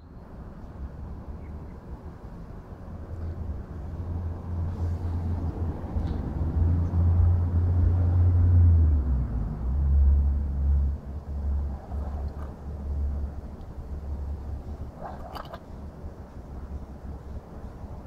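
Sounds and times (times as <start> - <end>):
wind buffeting microphone: 10.8 - 18.0.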